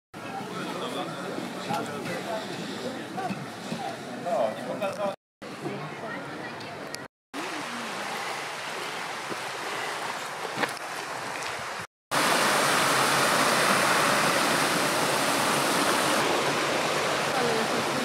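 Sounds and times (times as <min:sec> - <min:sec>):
stream rushing over rocks: 0:07.4 - 0:18.0.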